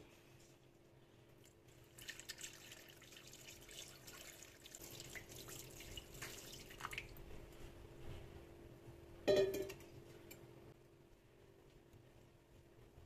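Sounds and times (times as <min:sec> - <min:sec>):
water pouring into a pot: 0:01.7 - 0:07.2.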